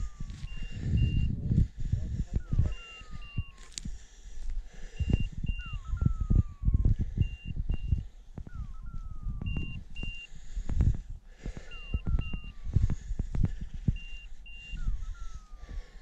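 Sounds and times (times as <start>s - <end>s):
short high beeps: 0.0s - 1.4s, 2.4s - 3.8s, 5.0s - 10.3s, 11.6s - 12.8s, 13.9s - 16.0s
low buffeting on microphone: 0.0s - 16.0s
falling electronic tone: 5.5s - 7.5s.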